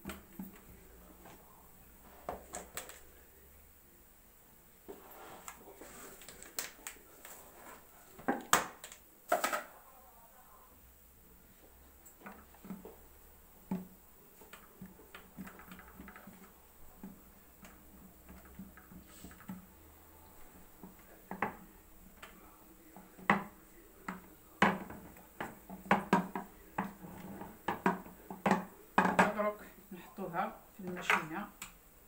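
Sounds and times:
rolling pin on wooden table: 20.5 - 29.4.

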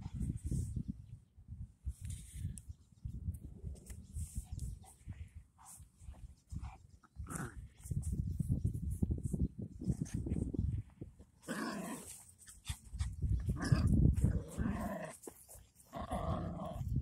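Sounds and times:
wind on microphone: 0.0 - 15.0, 15.9 - 17.0
microphone handling noise: 12.9 - 14.6.

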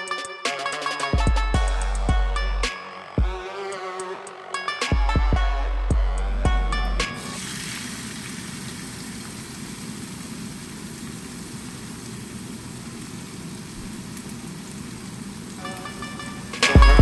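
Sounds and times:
beat-driven music: 0.0 - 7.4, 15.6 - 17.0
steak sizzling in a frying pan: 7.2 - 16.5.

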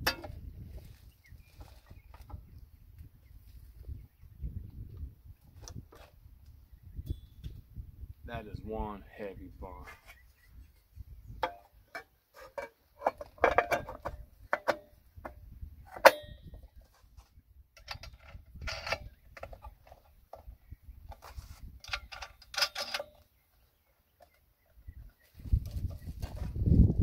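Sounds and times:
metal and plastic parts clattering: 11.4 - 14.9, 21.1 - 23.3.

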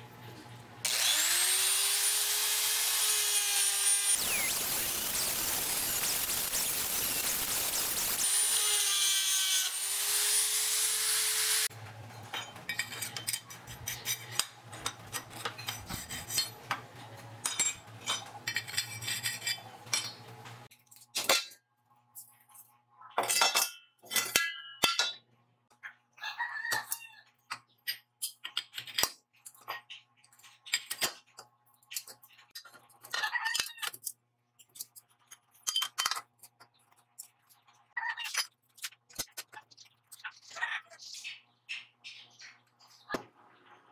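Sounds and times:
rotary tool grinding steel: 0.8 - 11.7.

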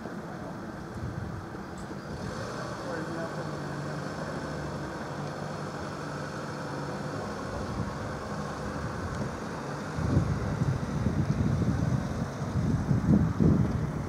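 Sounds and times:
wind buffeting microphone: 0.8 - 2.5, 7.3 - 14.0.

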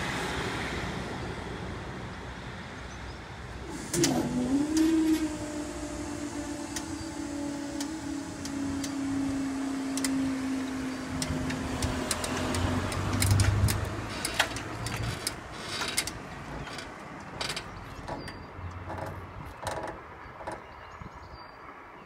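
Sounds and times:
barrier drive unit humming: 3.6 - 20.6
barrier arm clunk and rumble: 6.8 - 21.0.

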